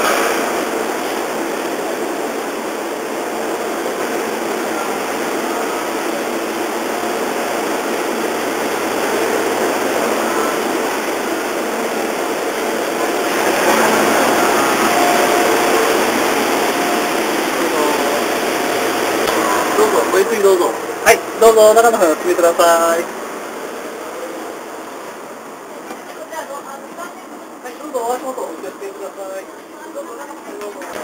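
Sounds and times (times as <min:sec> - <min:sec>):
railway platform rushing noise: 0:00.0 - 0:31.0
faint voices: 0:09.1 - 0:23.1.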